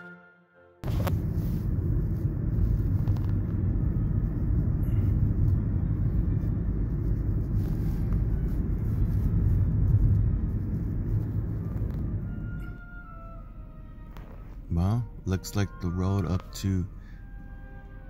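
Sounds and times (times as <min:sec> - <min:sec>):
car engine hum: 0:00.8 - 0:18.0
road and tyre noise: 0:00.8 - 0:18.0.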